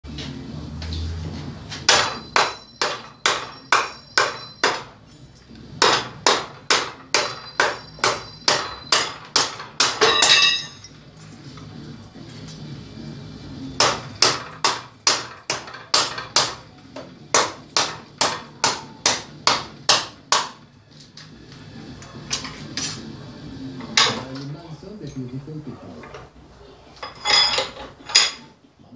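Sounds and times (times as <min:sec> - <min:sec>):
blade ringing: 0:02.1 - 0:04.9, 0:07.1 - 0:09.2, 0:10.0 - 0:10.9.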